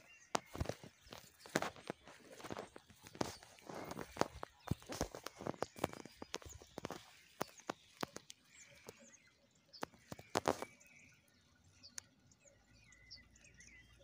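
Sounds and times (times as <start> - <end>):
dry reed stems crackling: 0.0 - 9.2, 9.8 - 10.8
faint small-bird chirps: 3.2 - 14.0.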